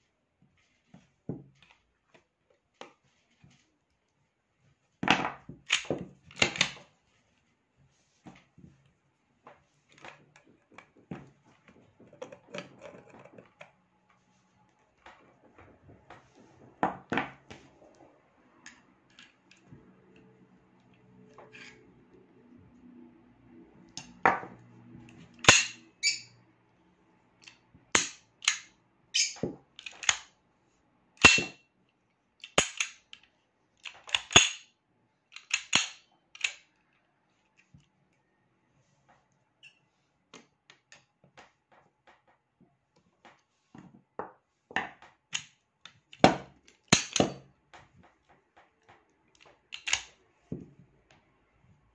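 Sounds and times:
pistol slide clicks and clacks: 27.4 - 28.8, 29.8 - 30.3, 32.4 - 34.7, 35.3 - 36.7, 46.8 - 47.4, 49.4 - 50.2.

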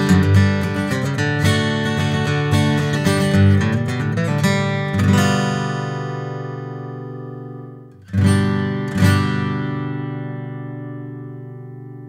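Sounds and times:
acoustic guitar strums: 0.0 - 12.0.

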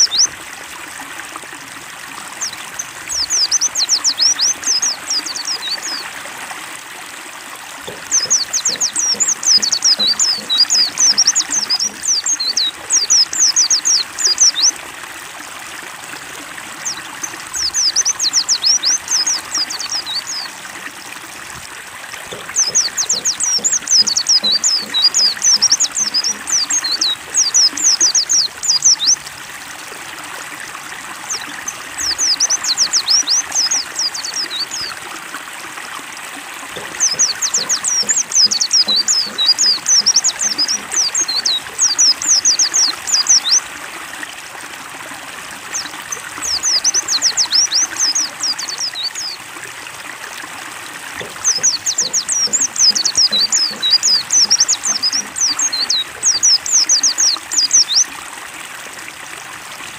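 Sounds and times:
water trickling and splashing: 0.0 - 59.9
bird chittering song: 2.4 - 6.0, 7.9 - 14.8, 16.8 - 20.5, 22.2 - 29.2, 31.3 - 34.9, 36.8 - 43.6, 45.7 - 49.4, 51.2 - 58.1.

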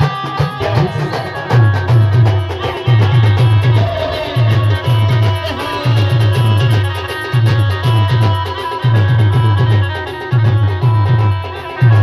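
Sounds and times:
band playing dance music: 0.0 - 12.0
deep drum beats: 0.0 - 12.0.

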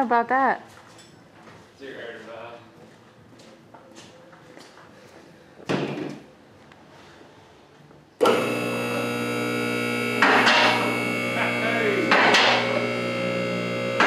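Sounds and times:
hydraulic pump motor humming: 8.2 - 14.0.

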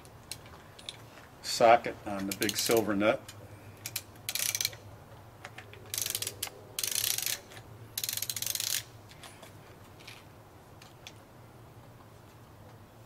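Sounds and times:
ratchet wrench clicking: 2.2 - 4.8, 5.9 - 8.9.

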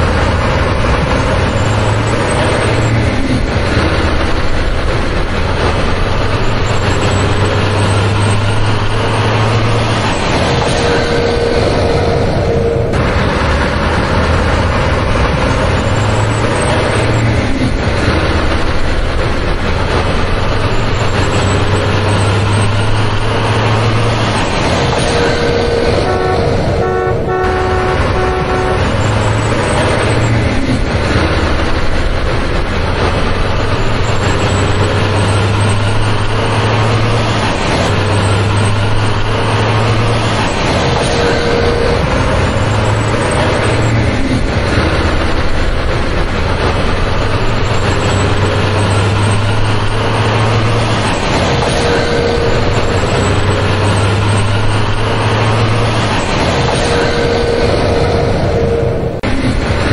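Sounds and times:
heavy truck engine running: 0.0 - 59.9
truck horn: 10.6 - 17.3, 25.0 - 30.4, 41.0 - 44.0, 51.6 - 59.3.

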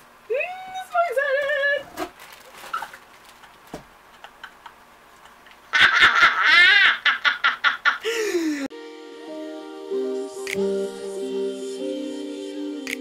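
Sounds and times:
woman laughing and squealing: 5.3 - 8.7
music: 8.7 - 13.0.

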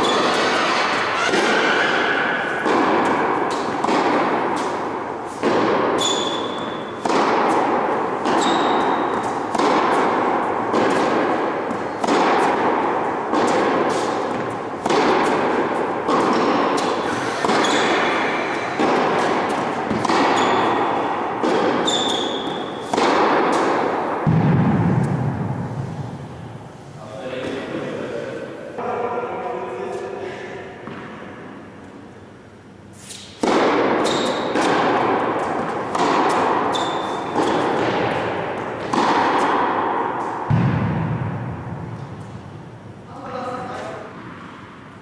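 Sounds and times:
shoe squeaks: 0.0 - 2.1, 6.0 - 7.0, 8.3 - 9.4, 16.8 - 19.5, 20.3 - 20.8, 21.8 - 22.9, 34.0 - 34.6, 36.7 - 37.4
tennis ball bouncing: 0.0 - 26.4, 33.1 - 42.6
tennis racket strikes: 0.0 - 26.6, 33.0 - 42.8.

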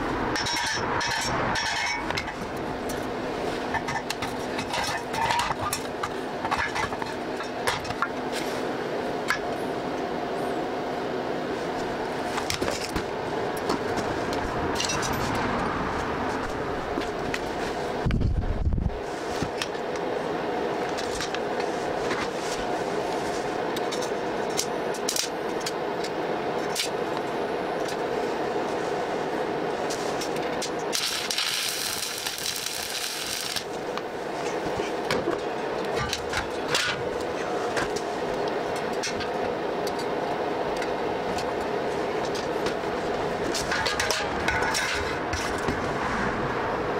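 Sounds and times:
mechanical hum: 0.0 - 46.9.

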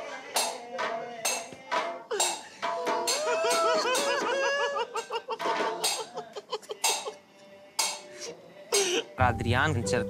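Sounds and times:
person singing melody: 6.0 - 10.0.

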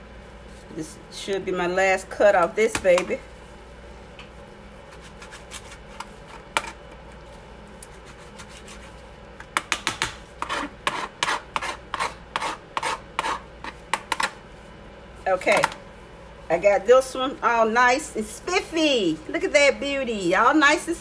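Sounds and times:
knife scraping cuts: 4.9 - 6.5, 7.8 - 9.0, 9.9 - 14.3.

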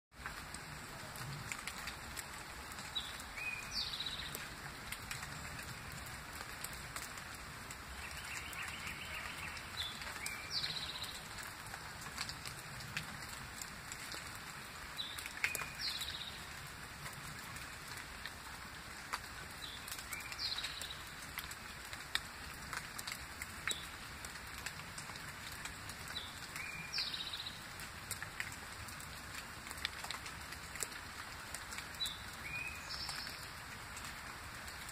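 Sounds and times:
rain falling: 0.1 - 34.9
sharp drips: 0.2 - 34.9
songbird calling: 8.0 - 11.3.

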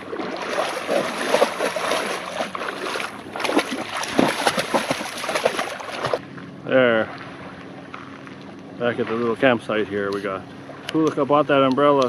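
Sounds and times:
dog splashing through water: 0.0 - 6.2.

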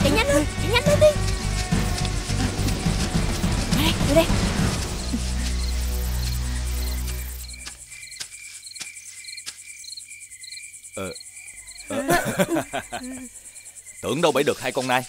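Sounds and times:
low music drone: 0.0 - 8.0
crickets chirping: 0.0 - 15.0.

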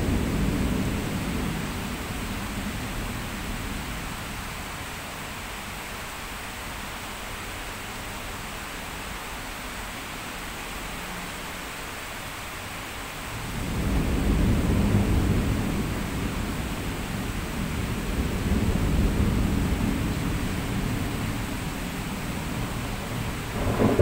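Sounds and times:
low rumble of thunder: 0.0 - 4.8, 13.3 - 24.0
heavy rain on window: 0.0 - 24.0.

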